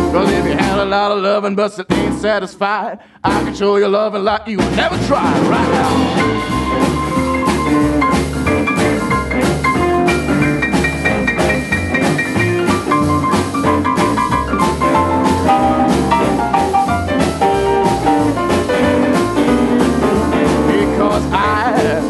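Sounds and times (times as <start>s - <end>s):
drum kit beat: 0.0s - 1.0s, 4.5s - 22.0s
upright double bass: 0.0s - 1.2s, 1.9s - 2.4s, 3.3s - 3.8s, 4.5s - 22.0s
electric guitar lead lines: 5.5s - 21.1s.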